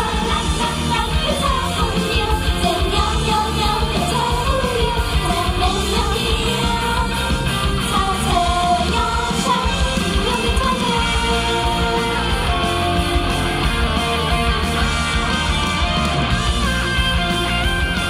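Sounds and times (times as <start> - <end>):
women singing into microphones: 0.0 - 12.9
pop backing track with beat: 0.0 - 18.0.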